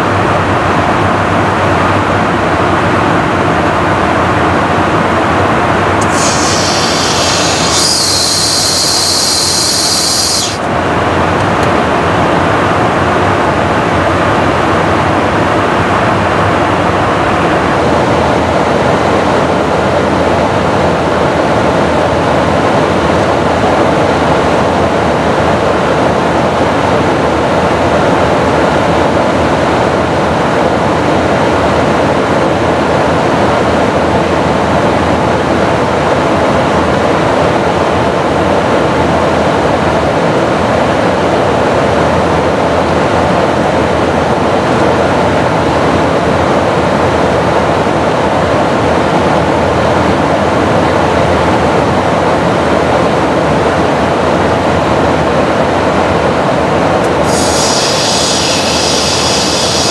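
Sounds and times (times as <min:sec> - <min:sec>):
aircraft airflow and engines rushing: 0:00.0 - 0:59.9
sharp high hiss: 0:06.0 - 0:10.7, 0:57.0 - 0:59.9.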